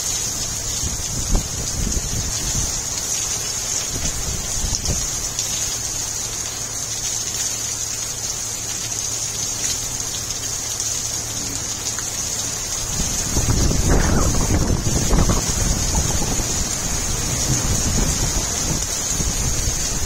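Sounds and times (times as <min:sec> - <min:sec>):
rain falling on shrubs: 0:00.0 - 0:20.0
wind buffeting microphone: 0:00.7 - 0:02.8, 0:12.8 - 0:20.0.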